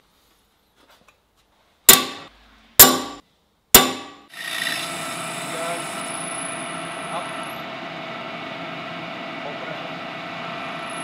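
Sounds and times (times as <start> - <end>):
hammer striking metal punch: 1.9 - 3.2, 3.8 - 4.3
milling machine spindle whine: 4.4 - 11.0.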